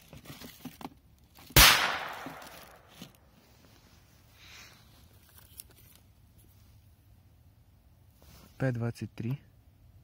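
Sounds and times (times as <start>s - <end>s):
firecracker bang with echo: 1.6s - 2.8s.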